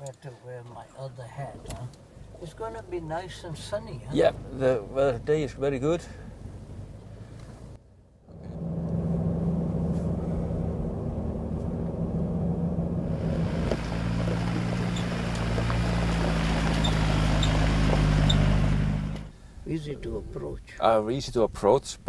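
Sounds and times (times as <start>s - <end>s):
road and tyre noise: 0.0s - 19.6s
car engine running: 2.0s - 19.3s.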